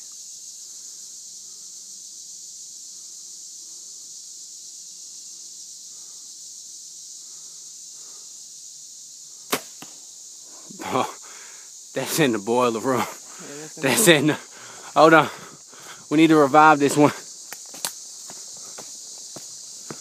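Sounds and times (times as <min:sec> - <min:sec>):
insect chorus: 0:00.0 - 0:20.0
bow shot snap: 0:09.5 - 0:10.0.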